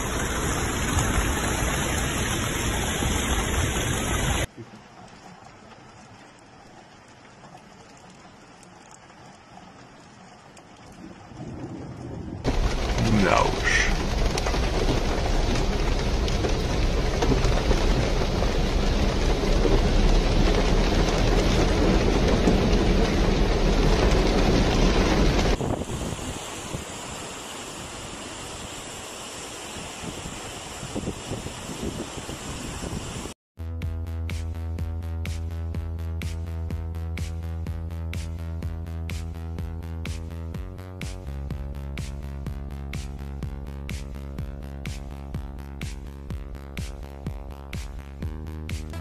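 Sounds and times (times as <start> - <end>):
floodwater rushing: 0.0 - 33.4
rain: 0.0 - 33.4, 36.2 - 49.0
deep rumble: 11.0 - 25.6.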